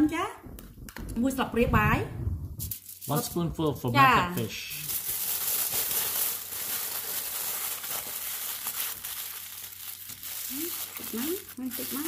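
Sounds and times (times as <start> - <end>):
aluminium foil crinkling: 2.6 - 3.4, 4.4 - 12.0.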